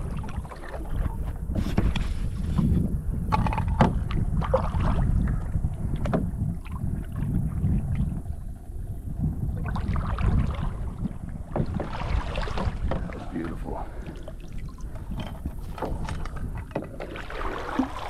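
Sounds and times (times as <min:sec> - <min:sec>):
wind rumbling on microphone: 0:00.0 - 0:18.0
short knocks and rustles: 0:01.0 - 0:04.0.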